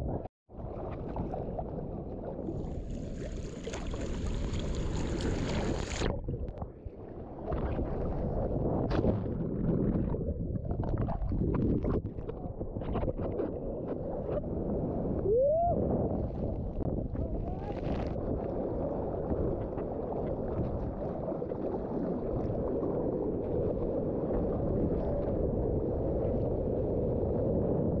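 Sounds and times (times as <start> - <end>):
wind and water rushing: 2.4 - 12.2.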